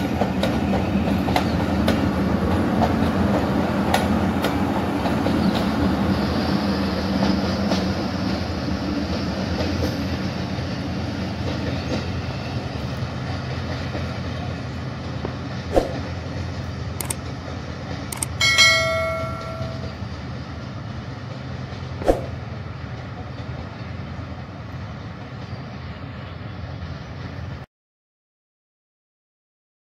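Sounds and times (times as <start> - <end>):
train rumbling over rails: 0.0 - 27.7
sharp clicks: 17.0 - 17.3, 18.1 - 18.4
short bell-like chime: 18.4 - 20.0.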